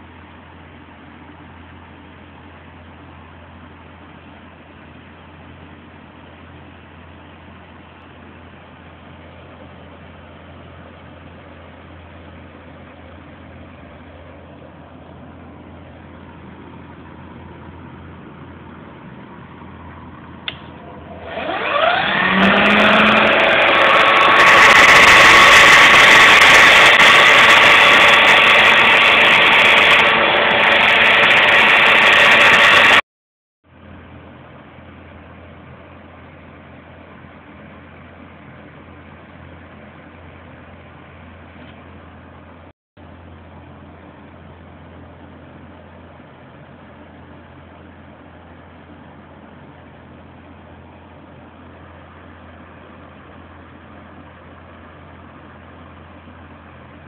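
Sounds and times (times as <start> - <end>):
faint steady hum: 0.0 - 21.7
switch click: 20.5 - 20.8
electric drill motor whining: 20.8 - 33.0.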